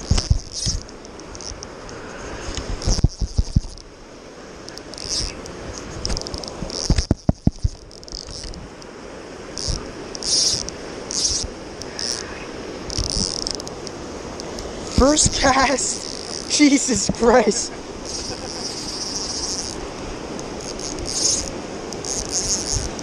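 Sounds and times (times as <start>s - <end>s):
river rapids rushing: 7.8s - 23.0s.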